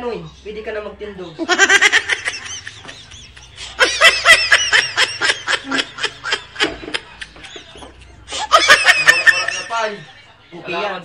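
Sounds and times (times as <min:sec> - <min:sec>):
person laughing: 0:01.4 - 0:09.6.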